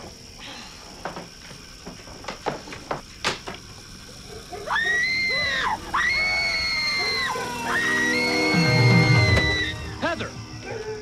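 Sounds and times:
woman screaming: 4.7s - 9.9s.

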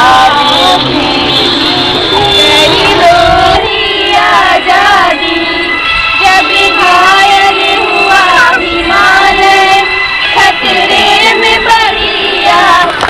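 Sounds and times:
children singing: 0.0s - 13.0s.

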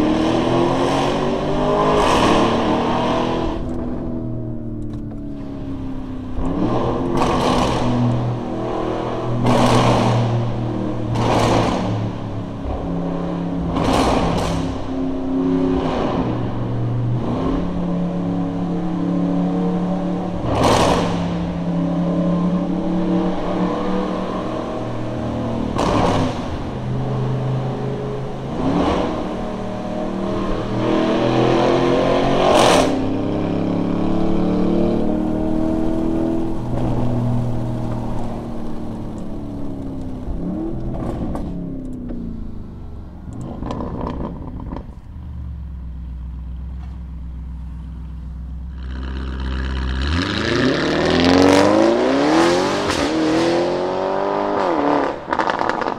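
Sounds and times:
car engine accelerating: 0.0s - 55.9s
exhaust crack on upshift: 6.3s - 12.9s, 13.6s - 15.0s, 20.3s - 21.6s, 25.6s - 26.8s, 34.0s - 50.6s, 54.6s - 55.9s.

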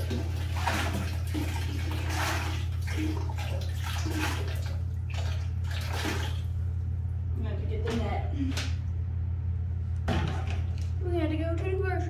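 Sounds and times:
water pouring and splashing: 0.0s - 6.4s
low hum: 0.0s - 12.0s.

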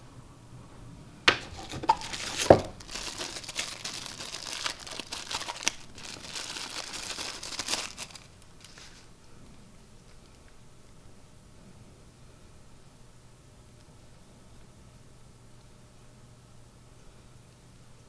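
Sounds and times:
plastic wrapping crinkling: 1.3s - 9.1s.

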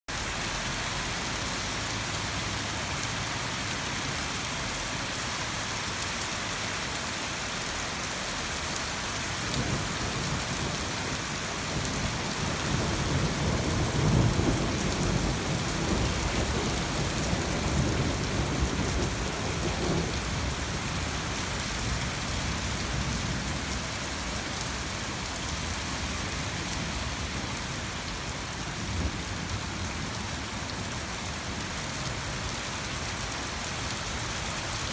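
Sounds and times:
rain hissing: 0.2s - 34.9s
low roll of thunder: 11.7s - 20.8s.

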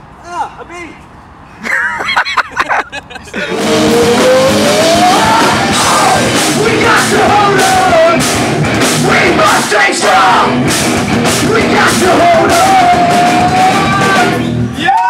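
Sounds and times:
person singing: 3.4s - 8.2s, 11.4s - 14.5s
steady drum beat: 3.4s - 14.4s
distorted electric guitars: 3.4s - 14.8s.

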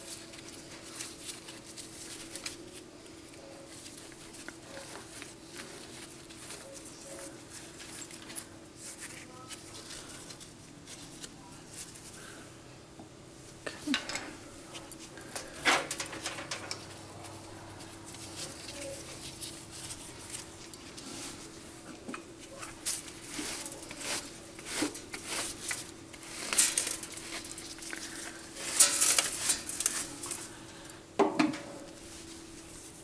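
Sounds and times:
faint steady hum: 0.0s - 33.0s
brush scraping metal chips: 22.5s - 30.6s.

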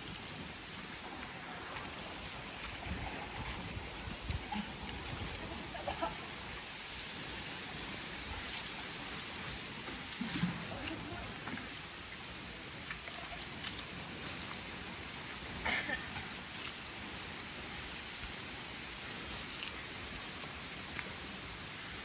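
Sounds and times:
faint splashes from swimmers: 0.0s - 22.0s
hissing river ambience: 0.0s - 22.0s.

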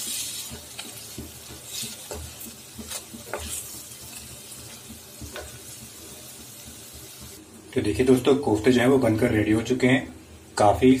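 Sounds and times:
wooden spatula scraping pan: 0.0s - 7.2s
batter sizzling in hot oil: 0.0s - 9.9s.

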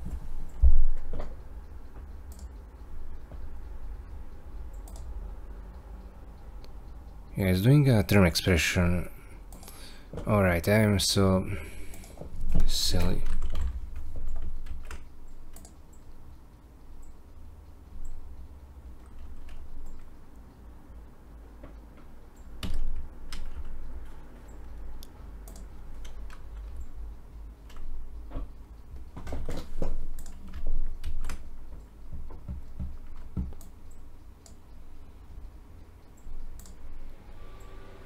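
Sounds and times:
computer keyboard typing: 0.4s - 5.2s, 9.5s - 10.9s, 11.5s - 16.3s, 17.9s - 20.2s, 22.3s - 27.0s, 27.6s - 34.8s, 36.1s - 37.0s.

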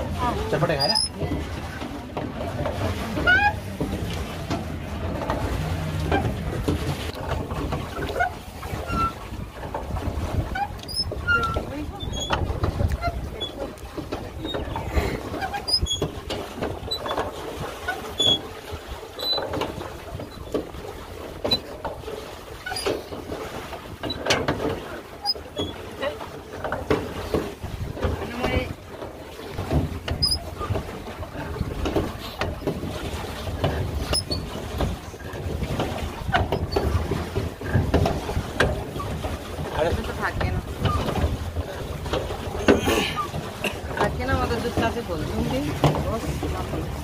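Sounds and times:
wind rumbling on microphone: 0.0s - 24.1s, 27.1s - 28.9s, 29.5s - 47.0s
knocks and splashes: 0.0s - 47.0s
short high squeaks: 0.8s - 1.2s, 34.1s - 34.4s.

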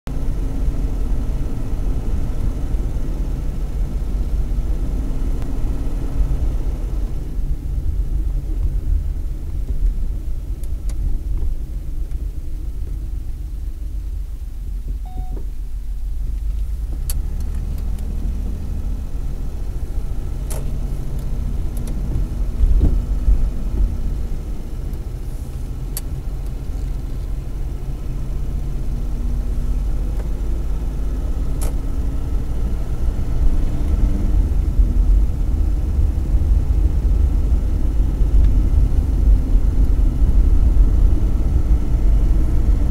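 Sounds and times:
car engine running: 0.1s - 42.9s
road and tyre rumble: 0.1s - 42.9s.

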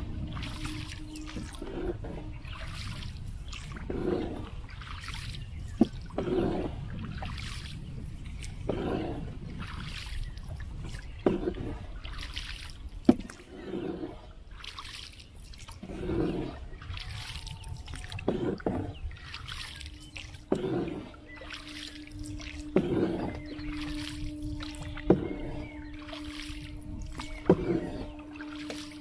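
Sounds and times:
oar swishing and splashing: 0.0s - 29.0s
water dripping: 0.1s - 1.8s, 16.7s - 29.0s
oar knocking wooden hull: 0.1s - 7.7s, 10.8s - 13.6s, 15.8s - 29.0s.

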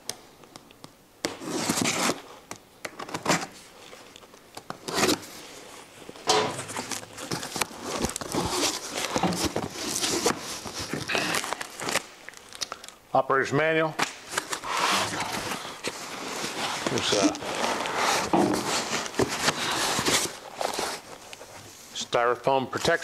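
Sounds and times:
packing tape ripping: 1.2s - 3.6s, 4.6s - 5.4s, 6.3s - 13.0s, 14.0s - 21.4s
cardboard flaps rustling and scraping: 4.8s - 12.0s, 14.3s - 21.6s.

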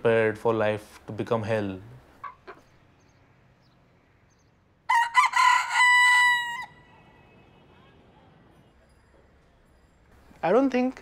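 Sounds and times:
rooster crowing: 4.9s - 7.1s.

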